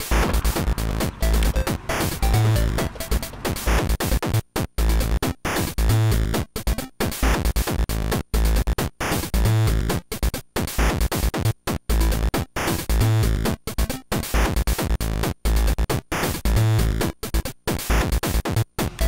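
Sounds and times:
looping music with deep bass hits: 0.0s - 4.0s.

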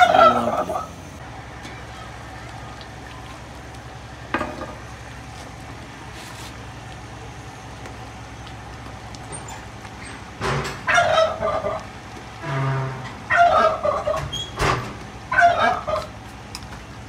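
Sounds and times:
turkey gobbling: 0.0s - 3.6s, 10.8s - 12.0s, 13.2s - 14.4s, 15.3s - 16.2s
steady low hum: 0.0s - 17.0s.

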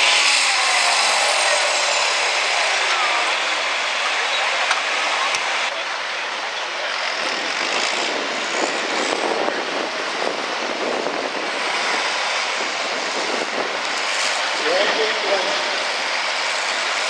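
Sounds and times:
tractor diesel engine revving high: 0.0s - 6.1s.

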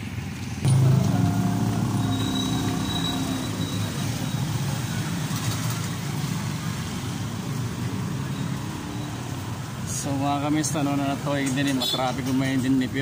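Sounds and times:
scooters passing: 0.1s - 9.9s
motorbike engine running: 0.6s - 5.3s.

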